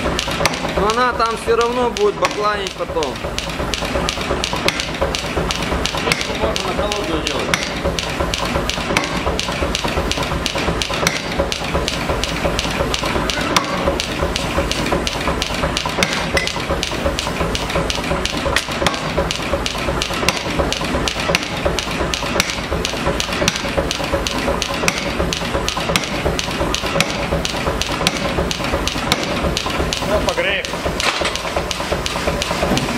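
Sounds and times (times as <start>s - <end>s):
hammer striking hot metal on anvil: 6.0s - 7.8s, 8.9s - 9.3s, 10.8s - 12.0s, 13.2s - 14.1s, 16.0s - 16.6s, 24.8s - 25.2s, 29.0s - 29.4s.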